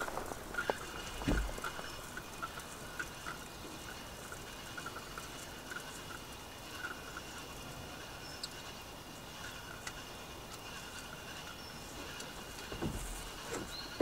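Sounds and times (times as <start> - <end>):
faint bird chirps: 8.0 - 14.0.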